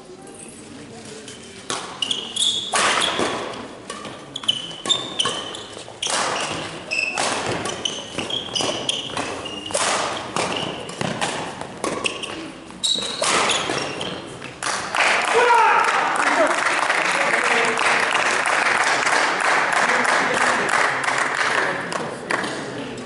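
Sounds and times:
racket hitting shuttlecock: 1.7 - 16.1, 21.0 - 22.7
shoes squeaking on floor: 1.8 - 14.6.

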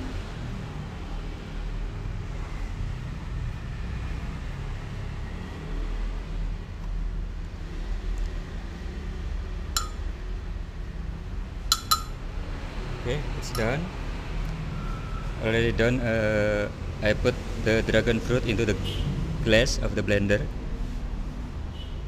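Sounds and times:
metal spoon clinking on glass: 9.8 - 10.0, 11.7 - 12.2, 13.5 - 13.8.

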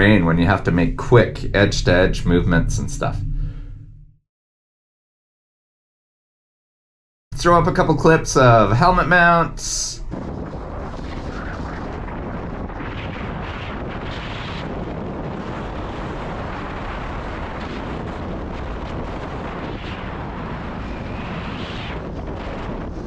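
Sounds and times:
wind buffeting microphone: 7.6 - 23.0.

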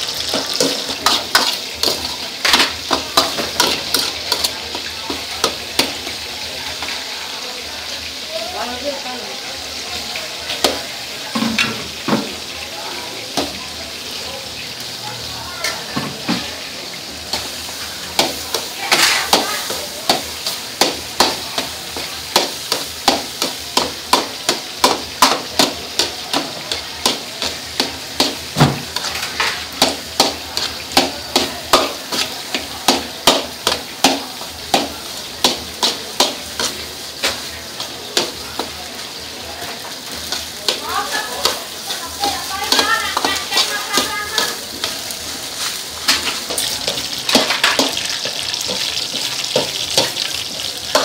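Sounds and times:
metal ladle scraping a wok: 0.0 - 6.2, 17.3 - 20.6, 24.4 - 32.6, 41.4 - 51.0
food sizzling: 0.0 - 51.0.

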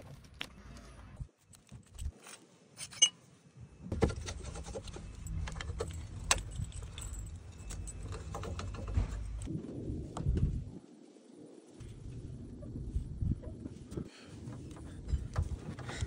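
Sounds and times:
steady low rumble: 5.1 - 10.8, 11.8 - 15.7.

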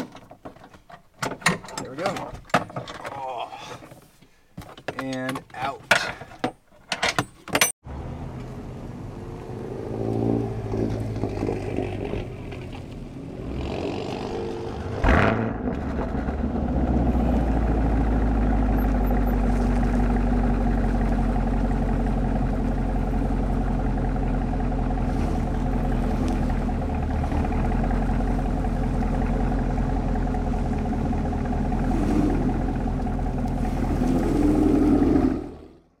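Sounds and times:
car engine starting and idling: 7.8 - 36.0.

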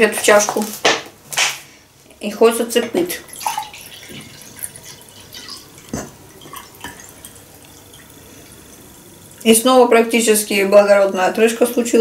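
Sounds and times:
fizzy water pouring into mug: 3.0 - 10.1.

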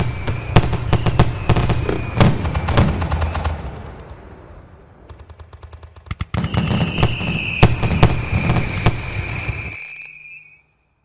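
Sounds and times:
firework high whistle: 0.0 - 3.5, 6.3 - 11.0
fireworks crackling and banging: 0.0 - 10.5.

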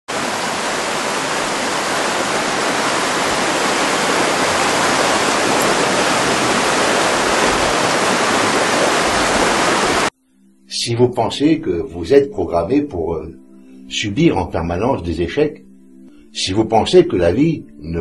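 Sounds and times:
water rushing in rocky stream: 0.1 - 10.1.

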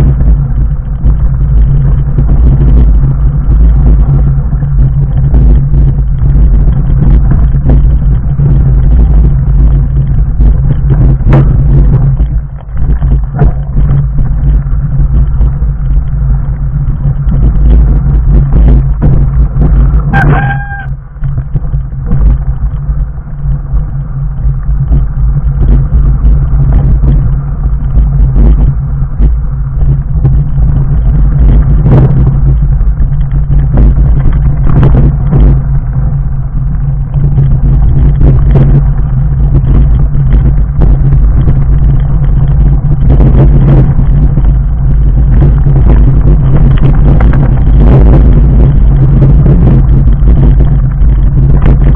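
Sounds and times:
bike rattling: 0.0 - 51.9
bike tyres rumbling over rocks: 0.0 - 51.9
high squeal: 20.1 - 21.0.

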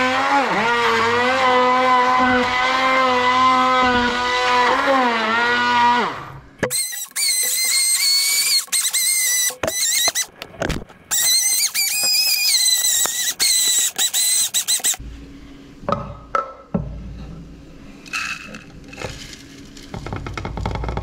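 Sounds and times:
immersion blender motor whine: 0.0 - 10.3.

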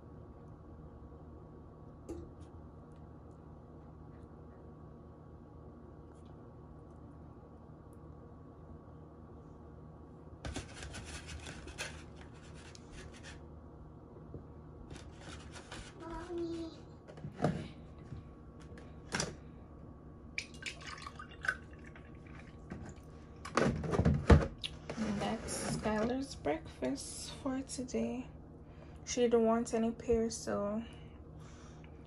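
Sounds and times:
juice glugging into glass: 20.4 - 22.7.

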